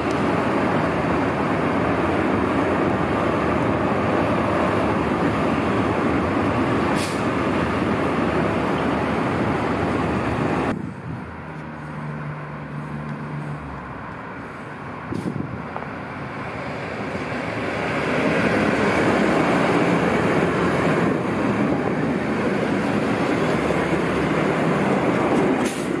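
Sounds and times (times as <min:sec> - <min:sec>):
train passing close by: 0:00.0 - 0:26.0.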